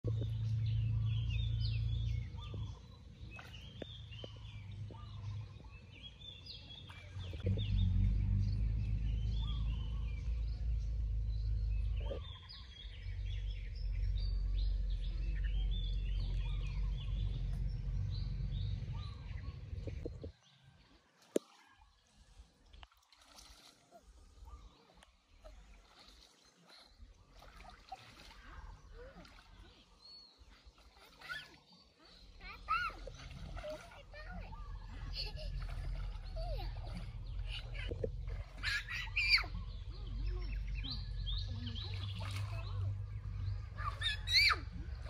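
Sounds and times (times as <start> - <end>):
forest birds chirping: 0.0 - 45.0
low rumble: 7.1 - 20.3.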